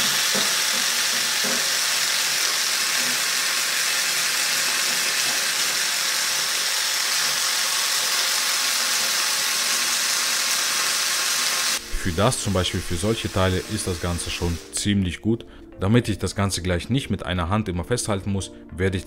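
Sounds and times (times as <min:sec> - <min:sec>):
sanding wheel hissing on wood: 0:00.0 - 0:14.8.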